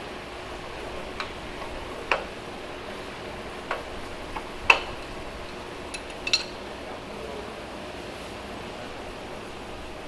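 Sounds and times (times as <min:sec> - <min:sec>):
workshop background noise: 0:00.0 - 0:10.0
metal tools tapping on steel table: 0:05.9 - 0:06.6.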